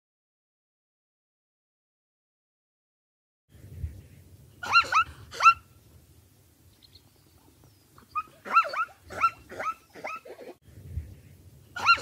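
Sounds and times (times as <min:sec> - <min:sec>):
zebra barking calls: 0:04.6 - 0:05.7, 0:08.0 - 0:10.6, 0:11.8 - 0:12.0.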